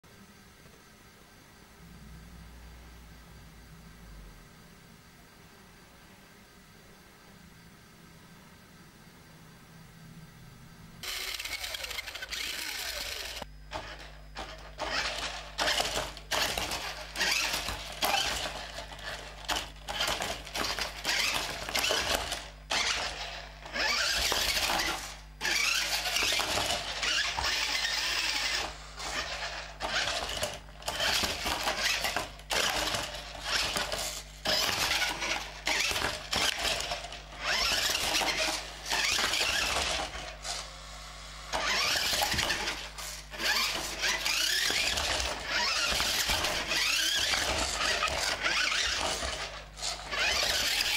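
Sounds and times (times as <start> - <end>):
toy car electric motor whirring: 11.0 - 50.9.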